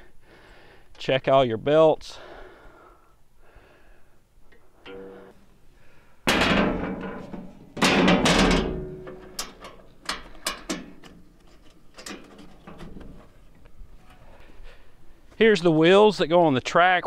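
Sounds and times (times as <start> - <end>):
metal blade cover clanking shut: 4.8 - 5.1, 6.3 - 11.2
light clicks and taps on metal: 9.0 - 14.2.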